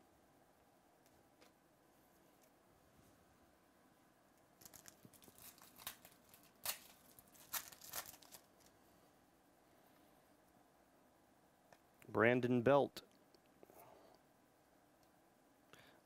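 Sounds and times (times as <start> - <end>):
foil wrapper tearing and crackling: 4.6 - 8.7.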